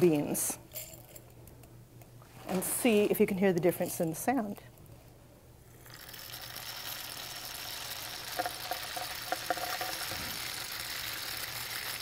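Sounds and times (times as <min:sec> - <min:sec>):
beans rattling in a rain stick: 0:05.8 - 0:12.0.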